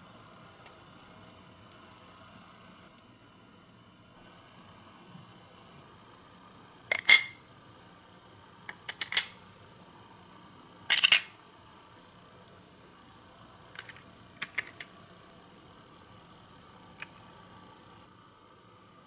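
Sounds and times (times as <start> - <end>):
plastic parts clicking into place: 8.7 - 9.4, 10.9 - 11.3, 13.8 - 14.9.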